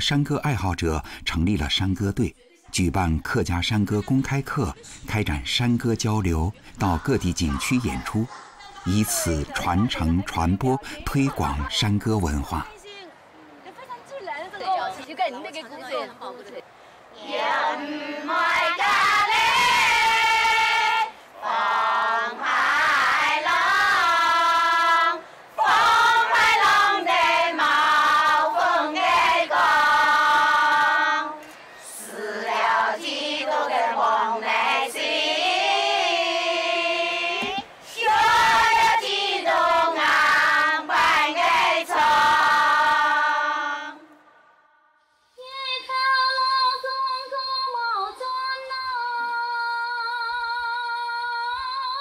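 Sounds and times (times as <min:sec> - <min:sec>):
singers breathing: 0:01.0 - 0:01.2, 0:06.6 - 0:06.8, 0:16.7 - 0:17.2, 0:21.1 - 0:21.4, 0:25.2 - 0:25.6, 0:31.4 - 0:32.0
women singing in unison: 0:17.1 - 0:44.2, 0:45.4 - 0:52.0.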